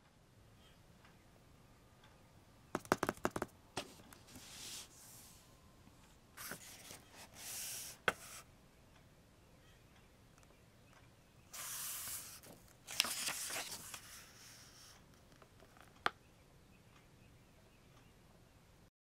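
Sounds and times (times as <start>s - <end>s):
book clicks: 2.8s - 4.4s, 11.6s - 14.2s
book cover and pages swishing: 3.8s - 5.3s, 6.4s - 8.4s, 11.6s - 14.1s.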